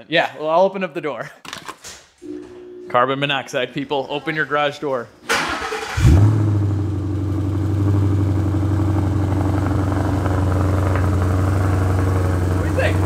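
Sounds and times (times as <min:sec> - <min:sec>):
car engine starting and idling: 0:05.3 - 0:13.0.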